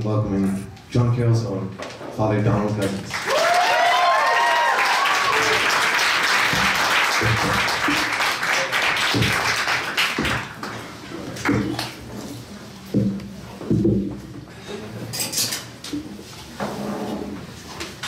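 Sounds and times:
audience applauding: 0:03.1 - 0:12.0
whoops and cheers: 0:03.2 - 0:05.8.

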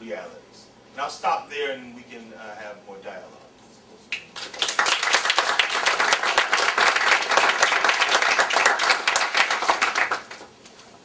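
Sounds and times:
audience applauding: 0:04.2 - 0:10.5.

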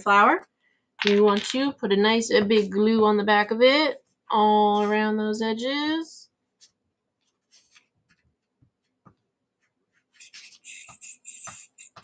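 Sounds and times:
paper rustling: 0:06.6 - 0:09.0.

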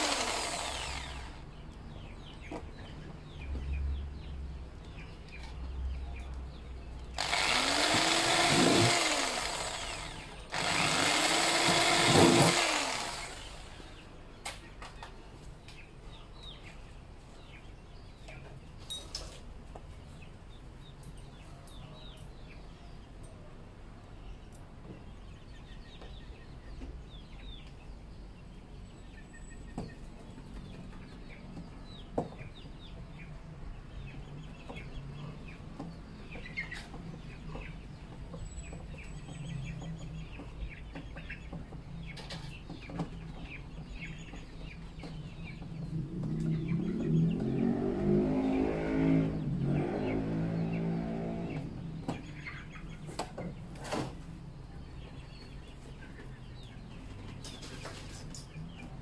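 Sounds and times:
small birds chirping: 0:00.0 - 0:59.0
chickens clucking: 0:24.5 - 0:47.6, 0:51.5 - 0:59.0.

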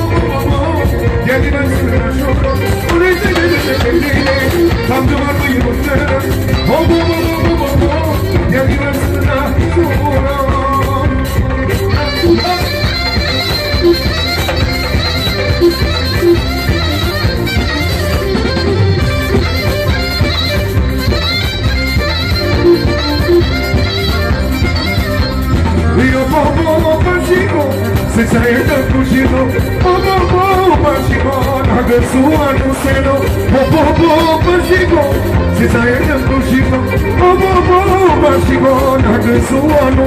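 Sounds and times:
person singing: 0:00.0 - 0:17.2, 0:25.8 - 0:40.0
band playing folk music: 0:00.0 - 0:40.0.

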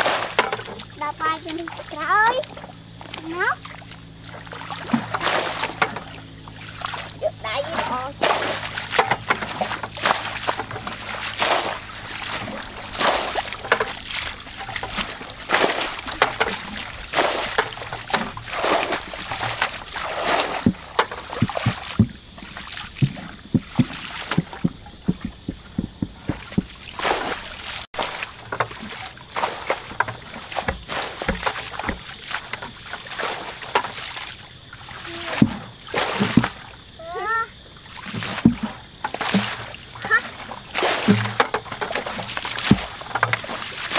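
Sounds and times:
high-pitched hiss: 0:00.0 - 0:27.9
muddy water splashing: 0:00.0 - 0:43.9.

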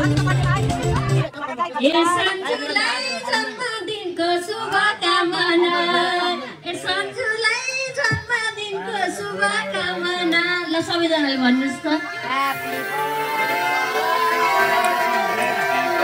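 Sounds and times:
group of people singing: 0:02.2 - 0:07.2.

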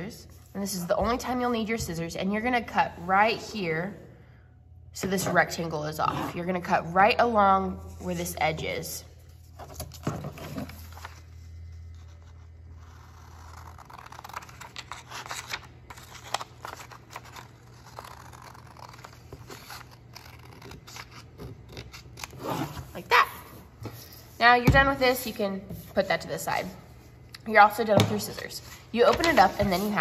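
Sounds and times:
paper rustling and scraping: 0:09.4 - 0:21.2, 0:28.7 - 0:30.0.

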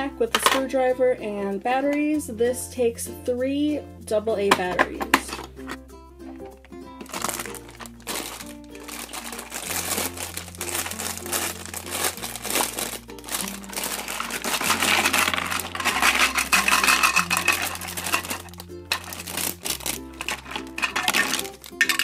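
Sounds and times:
light background music: 0:00.0 - 0:22.0
plastic bag crinkling: 0:07.0 - 0:22.0.

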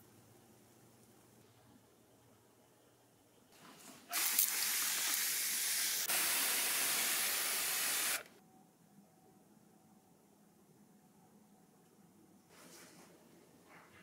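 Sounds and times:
pump sprayer hissing: 0:04.1 - 0:08.3.

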